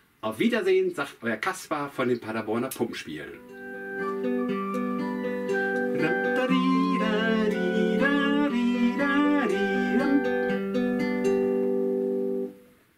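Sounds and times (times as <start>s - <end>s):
strummed acoustic guitar: 4.0s - 12.5s
person singing: 5.5s - 10.8s.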